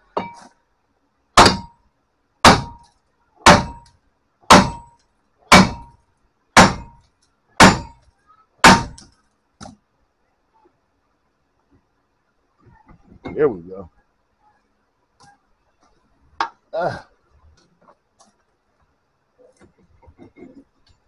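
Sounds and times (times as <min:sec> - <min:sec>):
sledgehammer striking metal: 0:01.4 - 0:01.8, 0:02.4 - 0:03.9, 0:04.5 - 0:06.0, 0:06.6 - 0:07.0, 0:07.6 - 0:08.0, 0:08.6 - 0:09.0.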